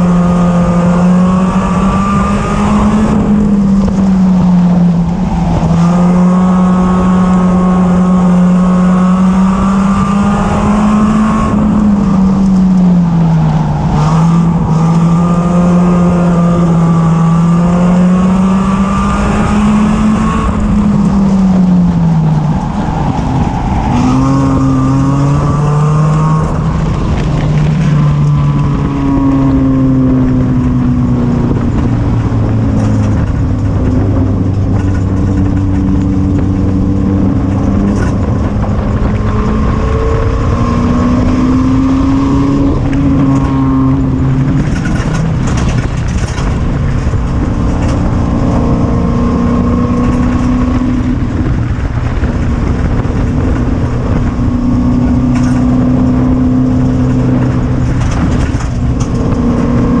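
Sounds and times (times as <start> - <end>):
race car engine revving: 0.0 - 60.0.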